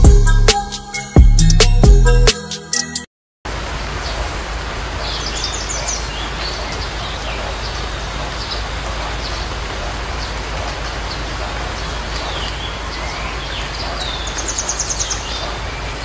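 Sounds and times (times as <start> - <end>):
steady outdoor hiss: 3.5 - 16.0
birds chirping: 3.7 - 16.0.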